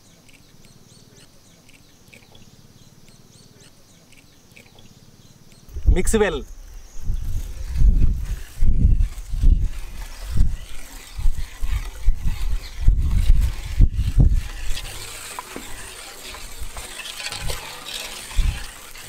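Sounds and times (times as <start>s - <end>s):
whisk swishing through batter: 8.0s - 19.0s.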